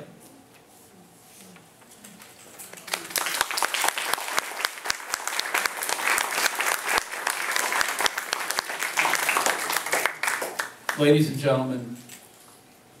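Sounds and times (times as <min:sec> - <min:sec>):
audience applauding: 0:02.7 - 0:11.2.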